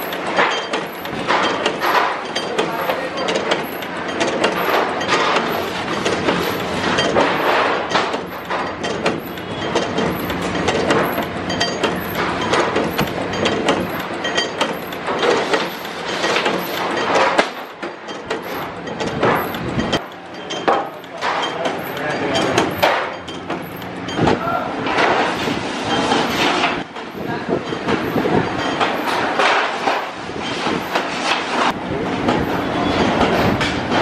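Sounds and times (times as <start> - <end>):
metal knocks clattering: 0.0 - 25.3.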